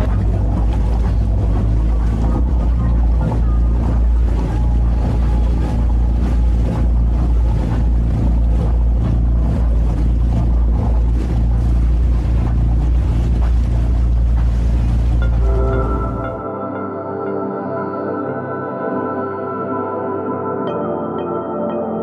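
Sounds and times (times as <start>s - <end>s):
wind on microphone: 0.0s - 16.4s
boat engine droning: 0.0s - 22.0s.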